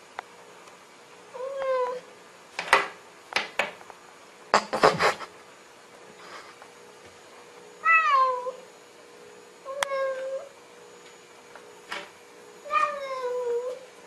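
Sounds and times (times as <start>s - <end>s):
cat meowing: 7.8s - 8.6s, 12.6s - 13.8s.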